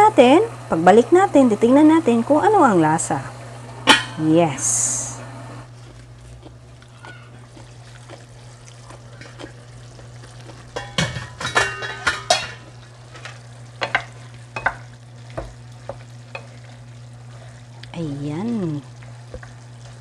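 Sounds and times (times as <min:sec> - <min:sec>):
food sizzling in a frying pan: 0:00.0 - 0:05.7, 0:08.4 - 0:20.0
steady low hum: 0:00.0 - 0:20.0
spatula knocking and scraping pan: 0:10.7 - 0:16.6.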